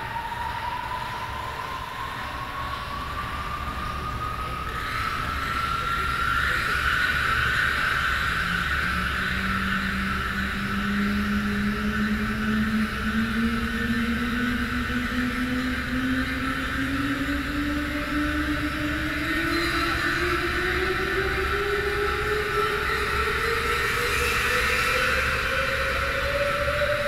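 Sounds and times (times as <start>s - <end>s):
theremin tone rising in pitch: 0.0s - 6.3s
noisy synthesizer drone: 0.0s - 27.0s.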